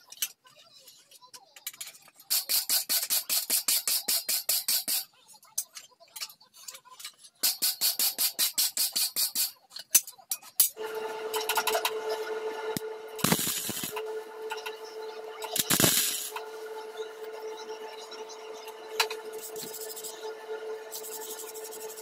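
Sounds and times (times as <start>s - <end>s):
wire brush scrubbing steel plate: 10.8s - 22.0s.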